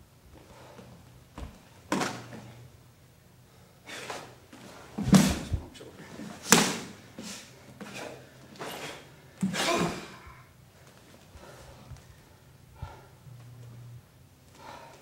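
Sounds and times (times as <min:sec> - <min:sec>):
feet stamping on wooden floor: 0:01.3 - 0:02.4.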